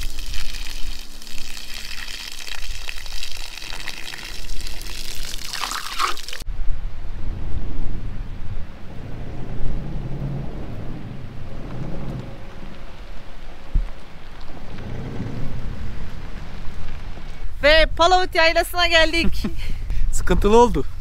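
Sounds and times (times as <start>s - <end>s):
running water: 0.0s - 6.4s
steady low rumble: 6.4s - 21.0s.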